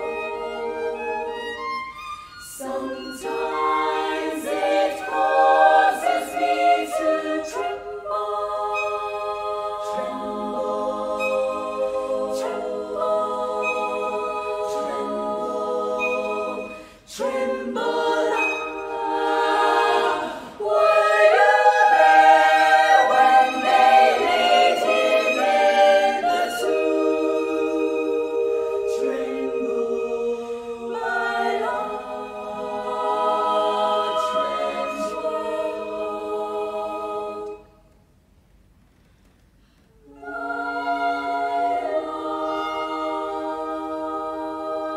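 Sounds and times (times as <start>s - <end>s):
violin playing: 0.0s - 28.1s, 40.1s - 43.8s
girls' choir singing: 2.5s - 37.7s, 40.0s - 44.9s
singers breathing: 16.7s - 17.1s.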